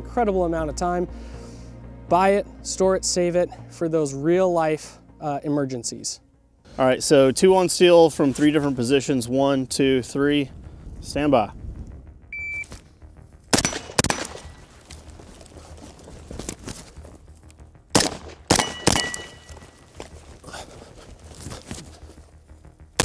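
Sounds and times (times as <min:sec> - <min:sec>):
shot timer beep: 0:12.3 - 0:12.7
suppressed rifle shots: 0:13.5 - 0:14.6, 0:17.9 - 0:19.6
steel plates ringing: 0:18.6 - 0:19.8.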